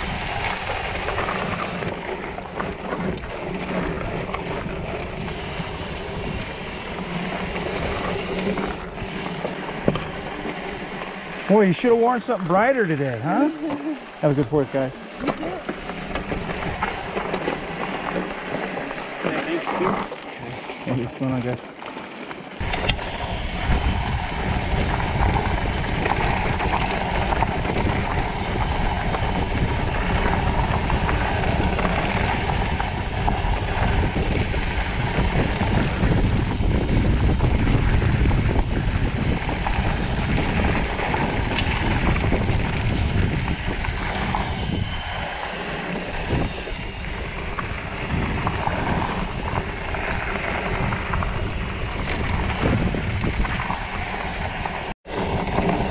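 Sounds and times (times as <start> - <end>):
wind rushing over microphone: 0.0 - 19.6, 22.6 - 55.9
bike tyres on dirt trail: 0.0 - 55.9.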